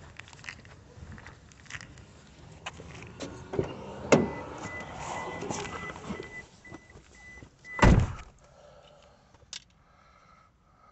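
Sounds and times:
car door slamming: 0:03.5 - 0:06.8, 0:07.7 - 0:08.3.

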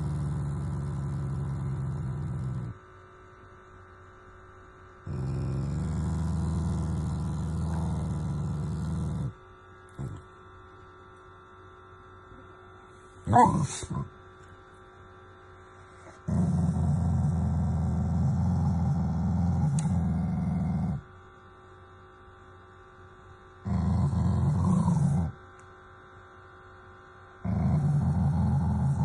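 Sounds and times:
dog growling: 0:00.0 - 0:02.8, 0:05.0 - 0:10.3, 0:13.3 - 0:14.1, 0:16.0 - 0:21.1, 0:23.6 - 0:25.4, 0:27.4 - 0:29.0.

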